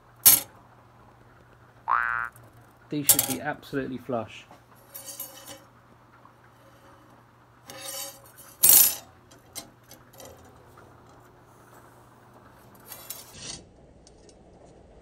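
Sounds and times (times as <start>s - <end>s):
steel plates clinking and scraping: 4.8s - 5.7s, 6.5s - 11.2s, 12.6s - 13.6s.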